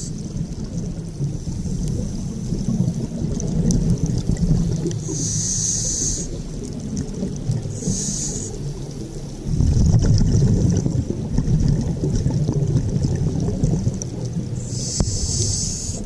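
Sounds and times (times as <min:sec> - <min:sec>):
exhaled air bubbling underwater: 0:00.0 - 0:16.0
regulator hiss on inhaling: 0:05.0 - 0:06.6, 0:07.7 - 0:08.8, 0:14.6 - 0:16.0.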